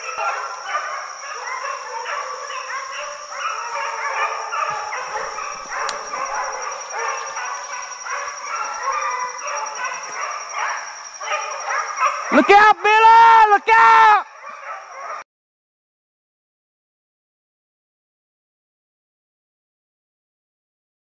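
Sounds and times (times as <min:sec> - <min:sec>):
hounds baying and yelping: 0:00.0 - 0:15.2.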